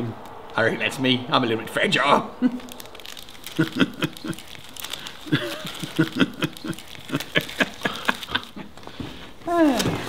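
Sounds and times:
choppy chuckles: 3.5s - 4.5s, 5.2s - 8.8s.

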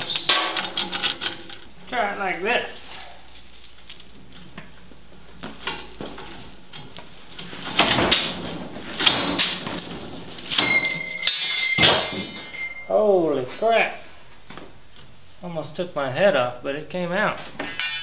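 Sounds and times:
steel chain clanking on metal: 0.0s - 4.8s, 5.4s - 14.2s, 17.6s - 18.0s.

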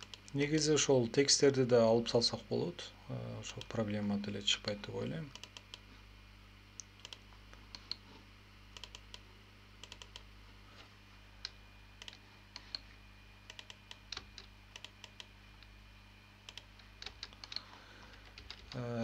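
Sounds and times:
low electrical hum: 0.0s - 19.0s
keyboard and mouse clicks: 6.8s - 8.0s, 8.7s - 9.2s, 9.8s - 10.3s, 11.4s - 12.8s, 13.5s - 15.3s, 16.5s - 18.8s.

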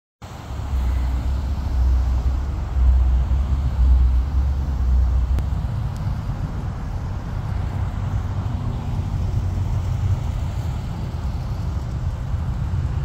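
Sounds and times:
jet airliner passing overhead: 0.3s - 13.0s.

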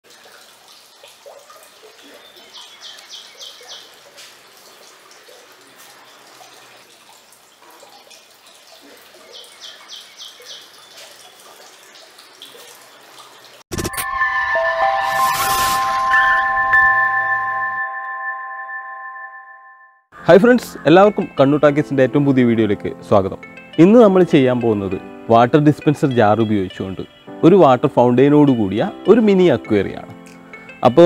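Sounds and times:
fountain water trickling: 0.0s - 13.6s
music: 13.7s - 31.0s.

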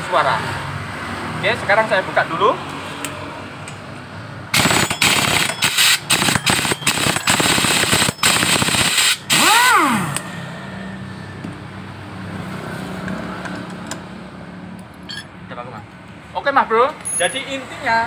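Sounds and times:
impact wrench hammering: 4.6s - 10.3s.

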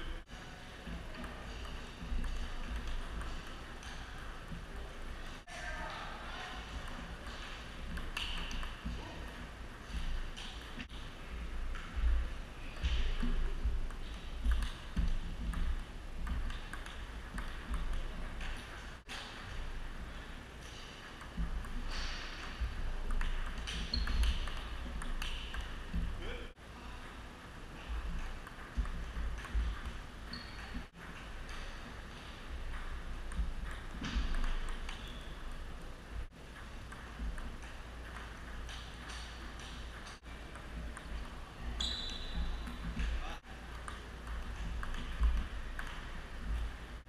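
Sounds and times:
table tennis ball clicking: 1.6s - 4.3s, 7.9s - 8.8s, 13.2s - 18.8s, 23.0s - 26.1s, 32.7s - 35.2s, 43.7s - 46.2s.

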